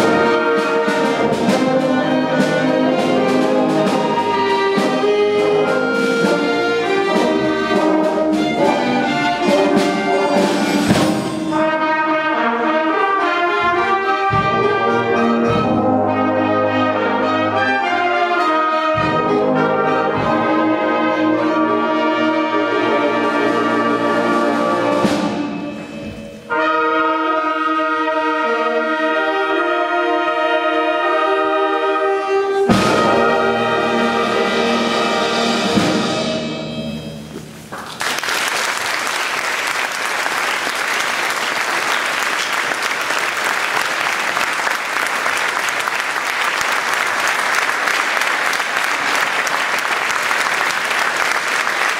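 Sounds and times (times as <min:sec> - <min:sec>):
wind band holding chords: 0:00.0 - 0:37.8
audience applause: 0:37.7 - 0:51.9.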